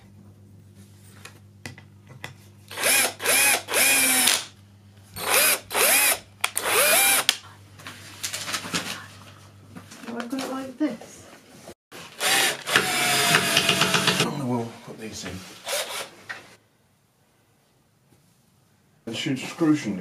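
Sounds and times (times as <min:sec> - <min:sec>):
cordless drill whirring: 0:02.7 - 0:04.5, 0:05.2 - 0:07.3, 0:12.2 - 0:14.3, 0:15.6 - 0:16.1.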